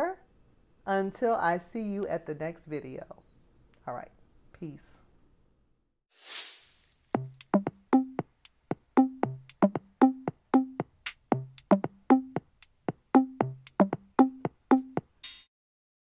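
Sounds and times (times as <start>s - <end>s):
low kick drum: 7.2s - 15.1s.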